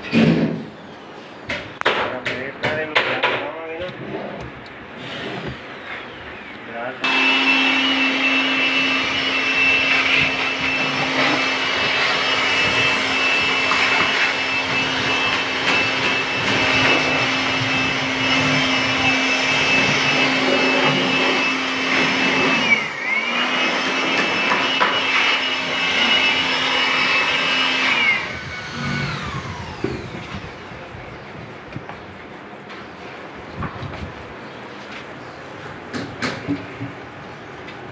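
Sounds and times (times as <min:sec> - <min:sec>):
electric air blower whining: 0:05.0 - 0:32.0.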